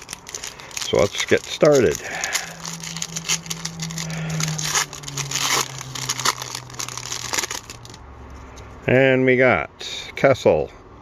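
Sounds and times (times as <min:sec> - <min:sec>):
foil wrapper tearing and crinkling: 0:00.0 - 0:08.0
low steady hum: 0:00.0 - 0:09.0.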